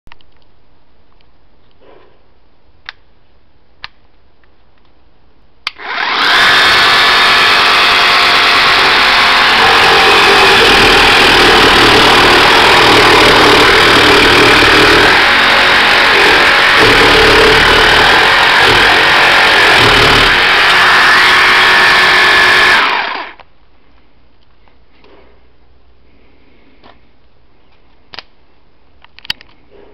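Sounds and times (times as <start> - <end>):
jigsaw sawing wood: 5.8 - 23.4.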